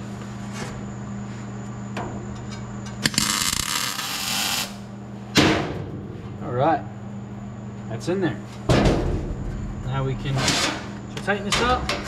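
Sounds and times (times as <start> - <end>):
welding arc click: 3.0 - 4.8
welding arc crackling and hissing: 3.0 - 4.9
welder low hum: 3.0 - 5.0.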